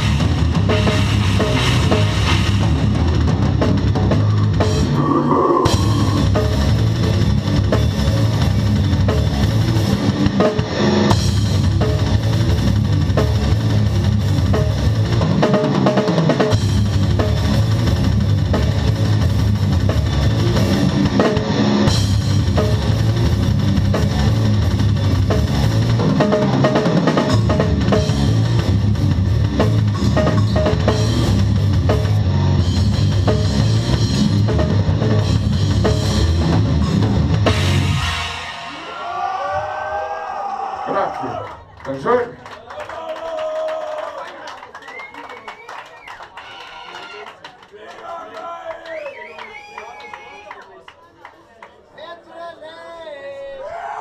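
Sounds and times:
death metal band playing: 0:00.0 - 0:40.4
drum kit pounding: 0:00.0 - 0:40.4.

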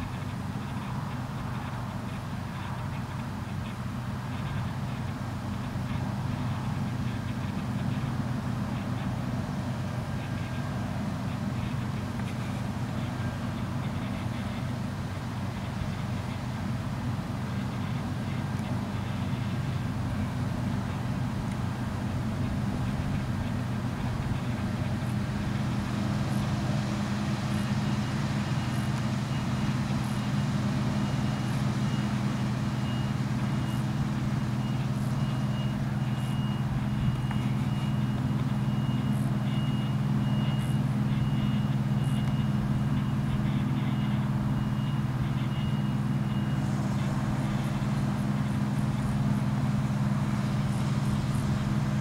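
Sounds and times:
combine harvester engine drone: 0:00.0 - 0:52.0
faint high-pitched pulsing tone: 0:02.6 - 0:52.0.

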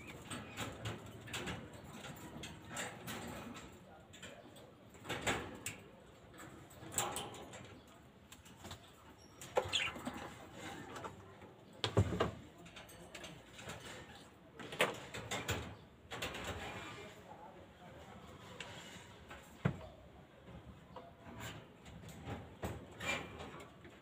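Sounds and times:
knocks and scrapes of handling: 0:18.3 - 0:24.0.

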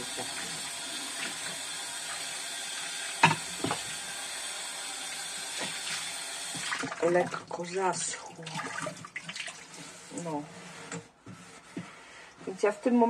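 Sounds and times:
tap water running into sink: 0:00.0 - 0:10.0.

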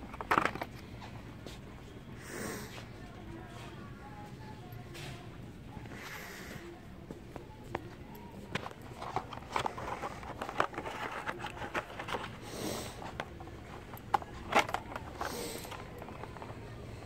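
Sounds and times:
phone handling clicks and scrapes: 0:08.5 - 0:16.6.

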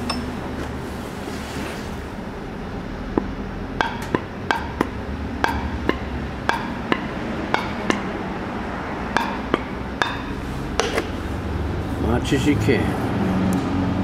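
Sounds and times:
metallic taps on piston: 0:03.2 - 0:08.1, 0:09.1 - 0:11.1.

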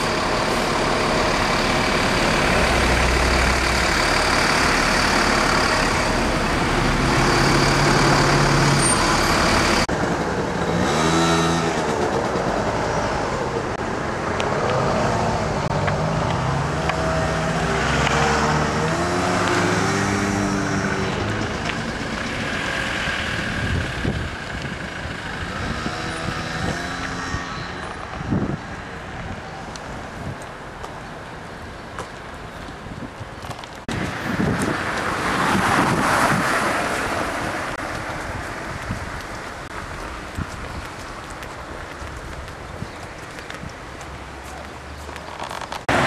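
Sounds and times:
road traffic passing: 0:00.0 - 0:46.0
vehicle engines pulling away: 0:00.0 - 0:46.0.

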